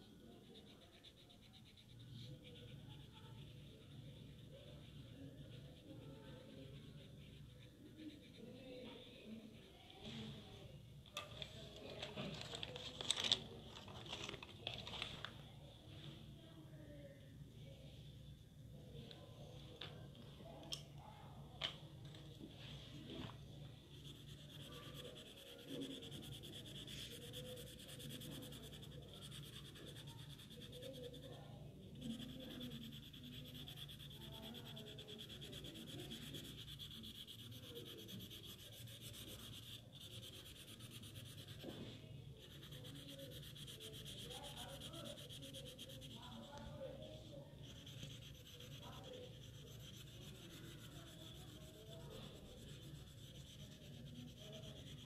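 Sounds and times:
pen scratching on paper: 0:00.1 - 0:09.7, 0:23.2 - 0:55.0.

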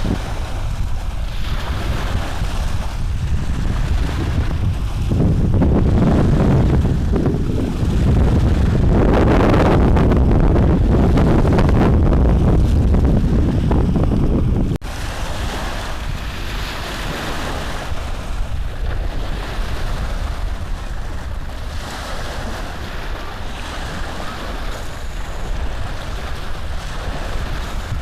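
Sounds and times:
rushing noise with low rumble: 0:00.0 - 0:16.8.

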